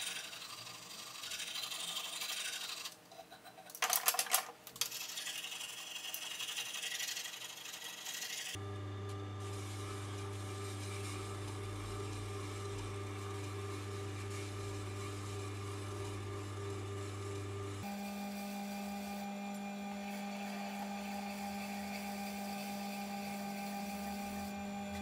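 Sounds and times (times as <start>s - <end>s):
sharpening machine motor hum: 0.0s - 3.0s, 5.0s - 25.0s
file scraping steel: 0.0s - 3.8s, 4.9s - 8.6s, 17.8s - 25.0s.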